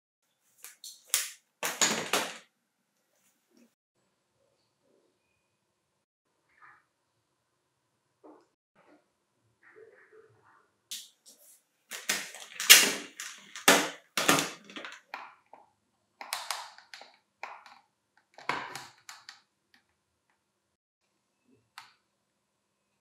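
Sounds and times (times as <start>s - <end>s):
plastic vacuum knocking and rattling: 12.0s - 15.0s.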